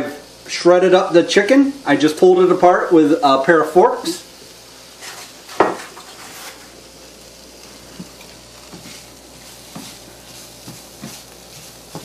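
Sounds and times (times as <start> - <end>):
roux sizzling in frying pan: 0.0 - 12.0.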